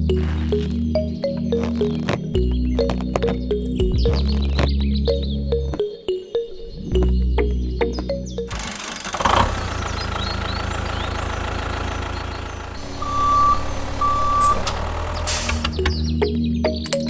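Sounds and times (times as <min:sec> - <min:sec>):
background music: 0:00.0 - 0:08.6, 0:15.2 - 0:17.0
tractor engine chugging: 0:08.5 - 0:16.0
short high beeps: 0:13.0 - 0:14.7.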